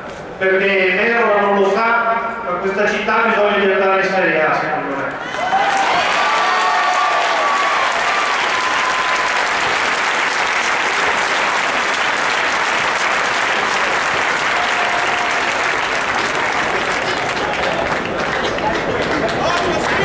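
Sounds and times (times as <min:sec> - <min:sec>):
large crowd applauding: 0:05.2 - 0:20.0.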